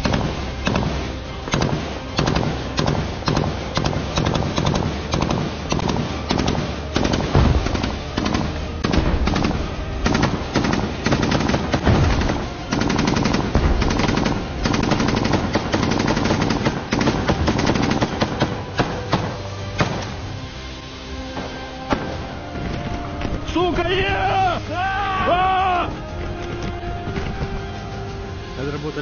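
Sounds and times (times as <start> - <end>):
automatic rifle fire: 0.0 - 20.2.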